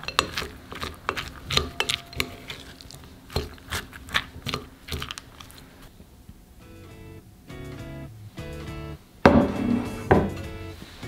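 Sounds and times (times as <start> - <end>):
rice paddle scraping glass bowl: 0.0 - 5.6.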